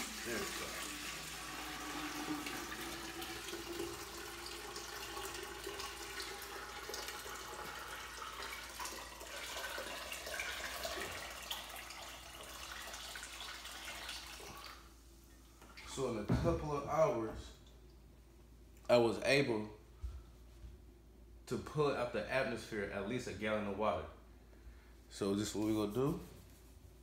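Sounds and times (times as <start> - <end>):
water pouring into metal tank: 0.0 - 15.0.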